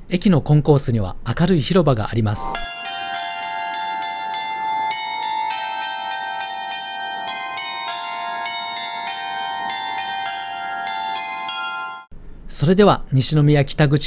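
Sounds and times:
carillon bells playing a tune: 0:02.6 - 0:12.1.

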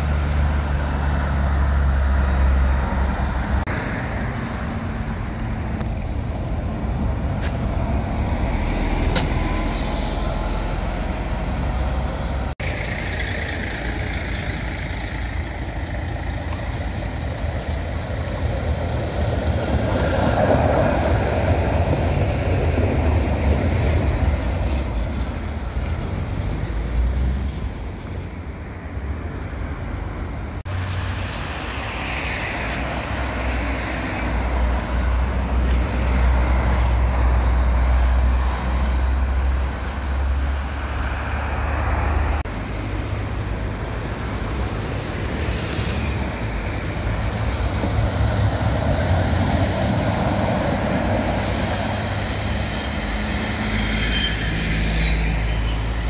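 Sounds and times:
street traffic: 0:00.0 - 0:56.0
tram rolling on street track: 0:00.0 - 0:56.0.

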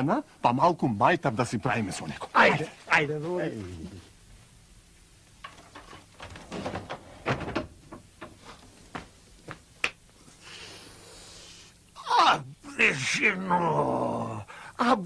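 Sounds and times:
faint hiss: 0:00.0 - 0:15.0
door knocks and clatters: 0:05.4 - 0:08.5.

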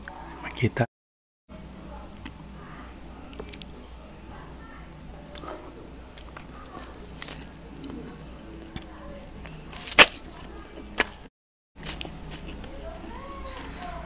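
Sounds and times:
soft chewing and mouth clicks: 0:02.1 - 0:02.5, 0:03.2 - 0:04.1, 0:05.3 - 0:09.7.

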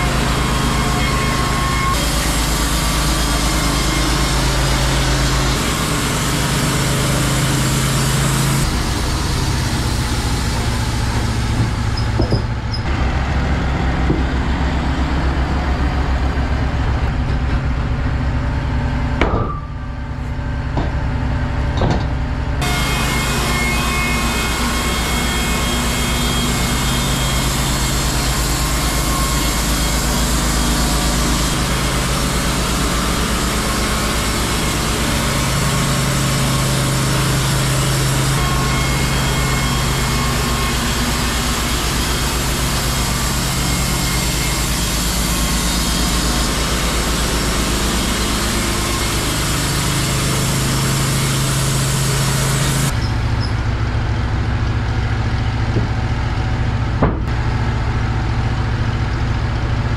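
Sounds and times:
sawmill engine hum: 0:00.0 - 0:59.9
knocks: 0:11.2 - 0:12.6, 0:57.0 - 0:57.3.

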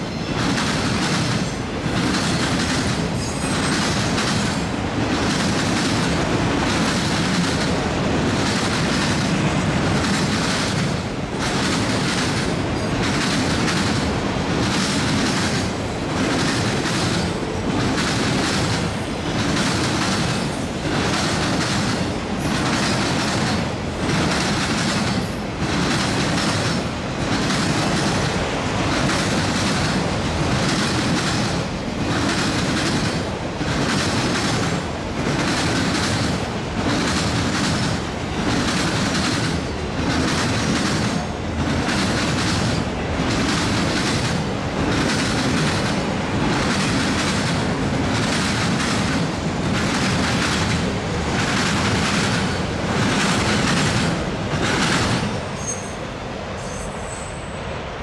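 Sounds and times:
freight train wheels clattering: 0:00.0 - 0:57.4.

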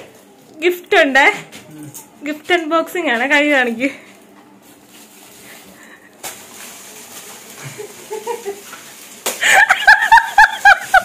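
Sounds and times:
person laughing high-pitched: 0:09.4 - 0:11.0.

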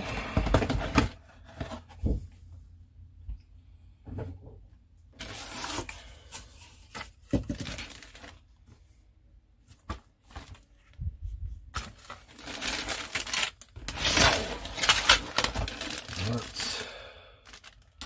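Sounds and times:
plastic bags crinkling: 0:07.5 - 0:08.5, 0:11.8 - 0:18.0.

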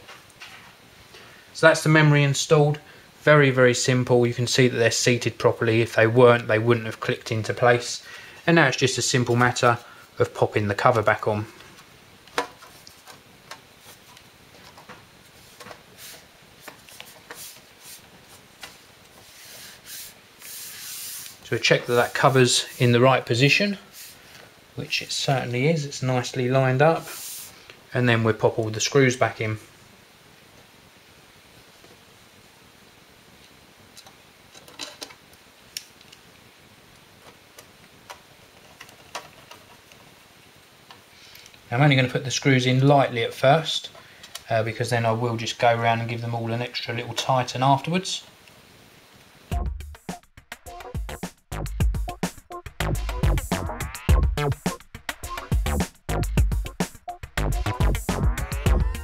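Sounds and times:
hands rubbing metal cover: 0:15.3 - 0:23.2.

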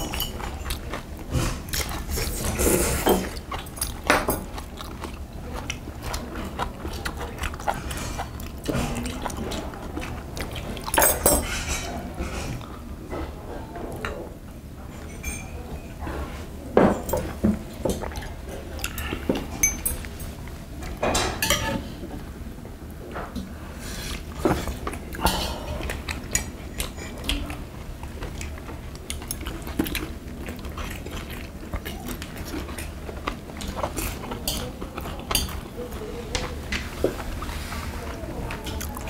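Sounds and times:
utensils clinking on metal tableware: 0:10.9 - 0:11.9, 0:15.0 - 0:15.9, 0:19.0 - 0:20.3, 0:21.0 - 0:21.8.

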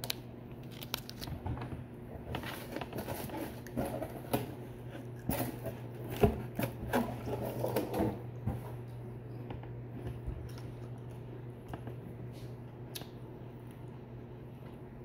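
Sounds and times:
plastic wrappers crinkling: 0:00.0 - 0:01.4
steady low hum: 0:00.0 - 0:15.0.

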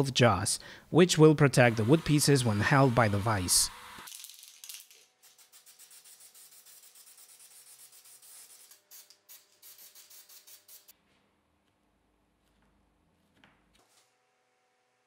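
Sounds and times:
aerosol can spraying in spurts: 0:05.2 - 0:10.9.

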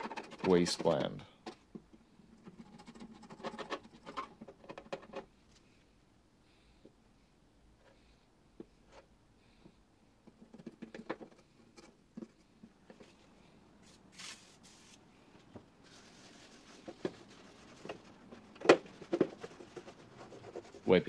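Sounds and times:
cloth rubbing on metal: 0:13.8 - 0:15.0, 0:15.8 - 0:21.0.

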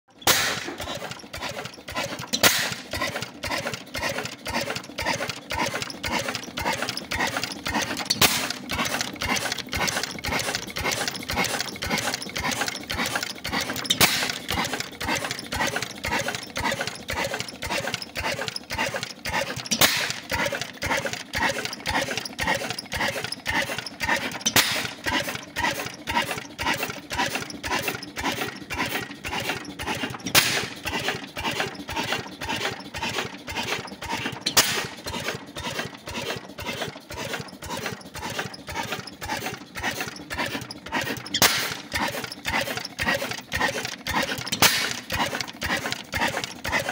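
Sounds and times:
oil engine rhythmic clatter: 0:00.1 - 0:46.9
loud sharp crack: 0:00.2 - 0:00.8, 0:02.4 - 0:02.8, 0:30.4 - 0:30.7, 0:41.4 - 0:41.7.

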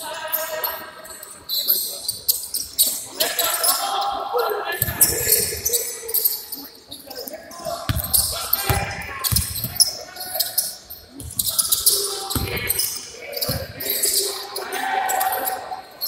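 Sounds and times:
basketball dribbling thuds: 0:07.9 - 0:09.9, 0:12.3 - 0:13.8.

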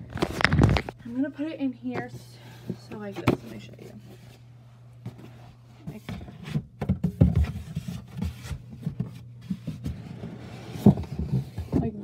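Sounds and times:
low steady hum: 0:00.0 - 0:12.0
handling knocks and rubbing: 0:01.9 - 0:04.4.

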